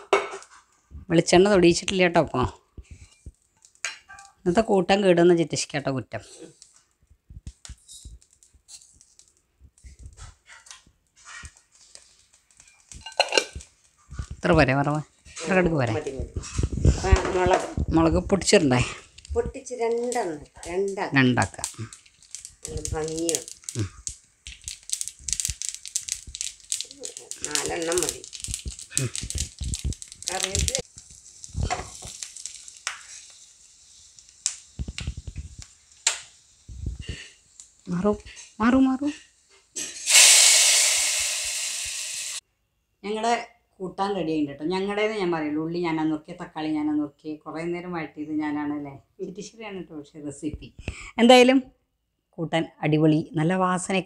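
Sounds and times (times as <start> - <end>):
spices sizzling in hot oil: 1.4 - 4.6, 7.5 - 10.4, 11.2 - 42.4
spoon clinking steel container: 13.0 - 13.6.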